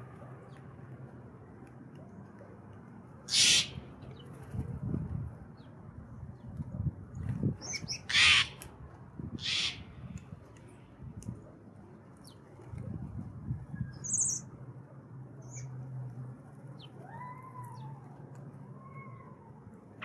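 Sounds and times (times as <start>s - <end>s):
jay harsh rasping squawks: 3.3s - 3.8s, 8.0s - 8.6s, 9.4s - 9.8s.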